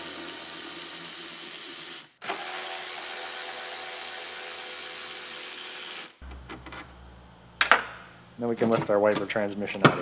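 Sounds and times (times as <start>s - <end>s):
electric ratchet running: 0.0s - 6.9s.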